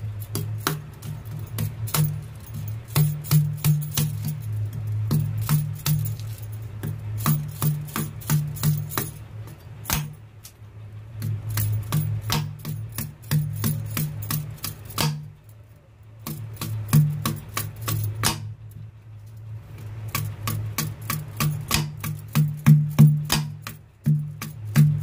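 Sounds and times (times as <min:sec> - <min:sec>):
knife chopping coconut husk: 0:15.0 - 0:15.2, 0:20.8 - 0:23.6.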